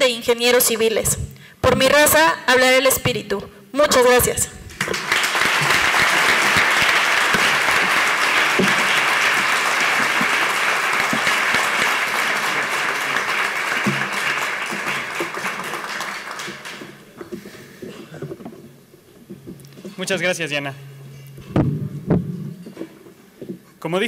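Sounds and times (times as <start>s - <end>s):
audience applauding: 4.7s - 17.2s.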